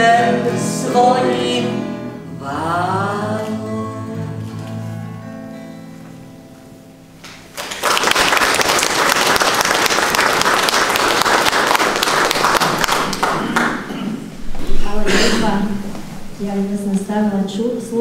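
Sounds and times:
person singing: 0.0 - 4.6
audience applause: 7.5 - 14.0.

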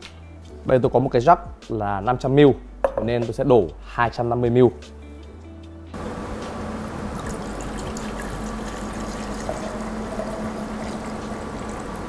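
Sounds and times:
liquid pouring into a jug: 7.1 - 12.0.

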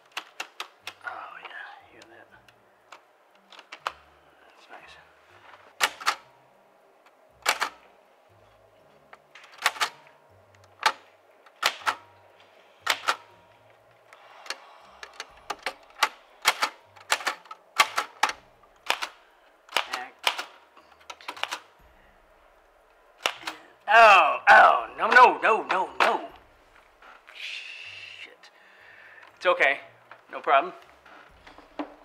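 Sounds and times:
typewriter keys clacking: 14.5 - 21.7.

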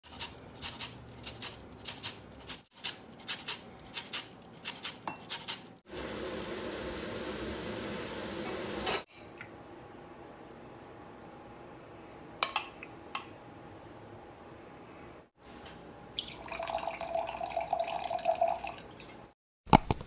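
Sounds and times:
zest grating on metal grater: 0.0 - 5.7
butter sizzling in a pan: 5.9 - 9.0.

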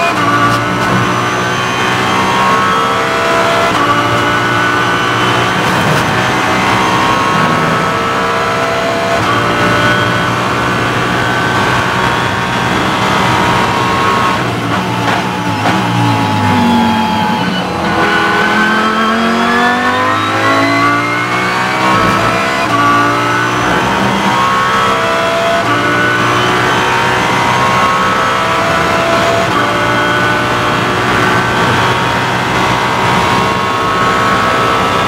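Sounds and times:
race car engine at full throttle: 0.0 - 35.0.

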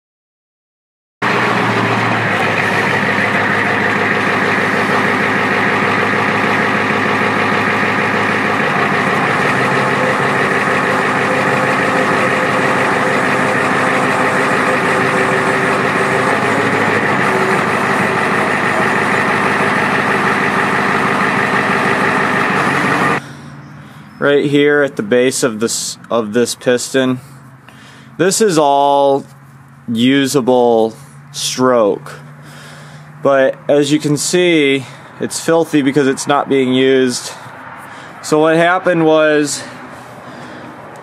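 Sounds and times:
hydraulic hoist raising: 1.2 - 23.2
truck engine idling: 1.2 - 41.0.

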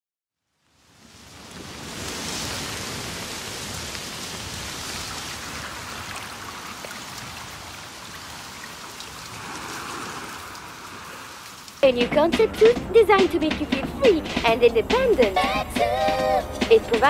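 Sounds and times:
steady rain-like rushing: 0.5 - 11.8.

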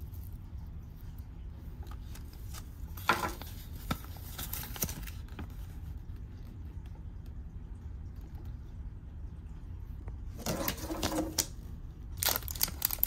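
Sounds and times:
paper rustling: 1.7 - 5.9
paper crackling: 1.7 - 6.2, 12.2 - 13.0.

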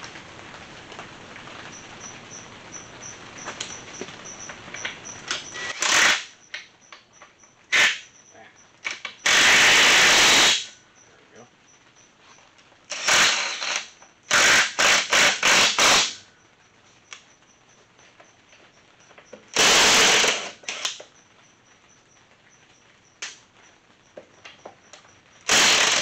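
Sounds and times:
impact driver bursts: 5.5 - 6.4, 9.2 - 10.7, 12.9 - 16.2, 19.5 - 21.0, 25.5 - 26.0.

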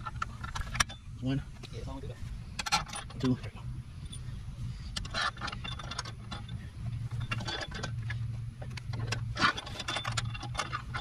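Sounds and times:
metal bolts and nuts clinking: 2.6 - 3.5, 5.0 - 11.0.

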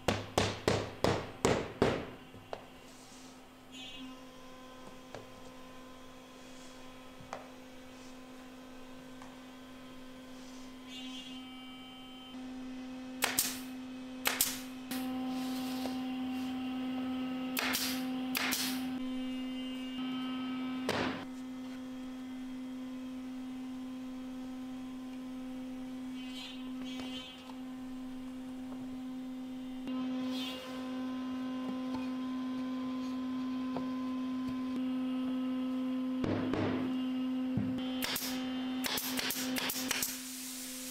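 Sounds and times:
pneumatic stapler shots: 13.2 - 15.0, 17.6 - 18.9, 38.0 - 40.8.

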